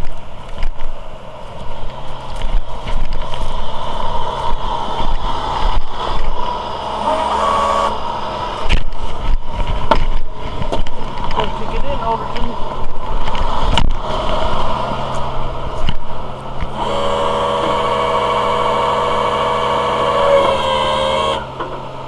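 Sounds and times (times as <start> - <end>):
rustling near microphone: 0.0 - 6.7
truck engine idling: 0.0 - 22.0
footsteps through grass: 0.3 - 6.6, 12.9 - 16.7.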